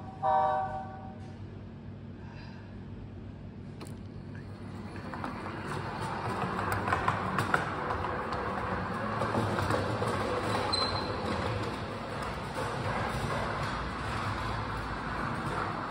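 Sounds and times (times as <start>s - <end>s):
model train rolling on metal rails: 4.4s - 15.9s.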